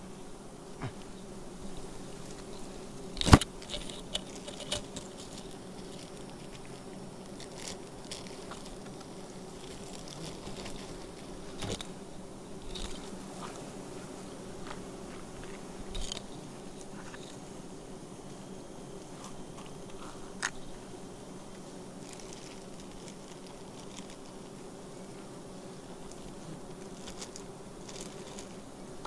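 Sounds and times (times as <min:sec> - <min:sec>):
bees buzzing: 0:00.0 - 0:29.0.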